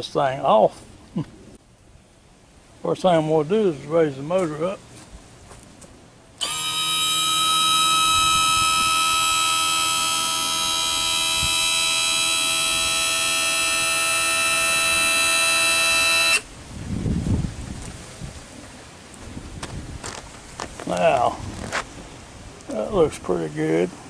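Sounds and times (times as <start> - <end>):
electric trim motor buzzing: 6.4 - 16.5.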